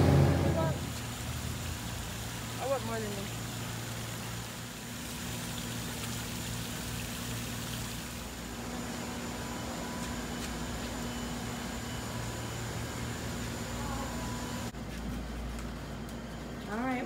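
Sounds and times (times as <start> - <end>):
fountain water splashing: 0.0 - 10.9
low mechanical hum: 0.0 - 17.0.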